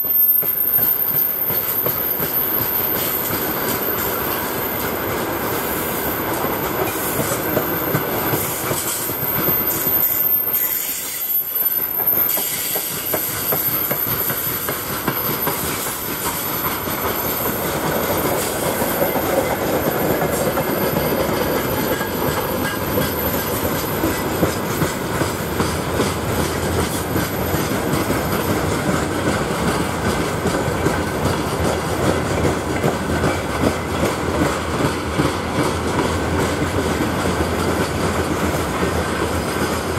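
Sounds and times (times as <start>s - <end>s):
freight train wheels rumbling: 0.0s - 39.9s
wheel clacks over rail joints: 12.0s - 39.9s.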